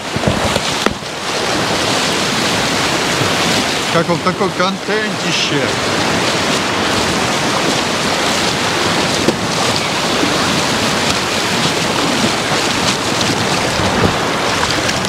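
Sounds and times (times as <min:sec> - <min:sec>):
small waves breaking: 0:00.0 - 0:15.0.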